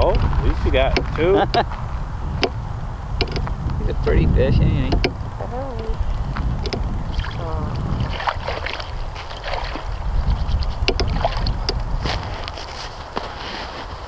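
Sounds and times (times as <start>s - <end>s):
wind buffeting microphone: 0.0s - 14.0s
clicks and crunches on snow: 12.0s - 14.0s.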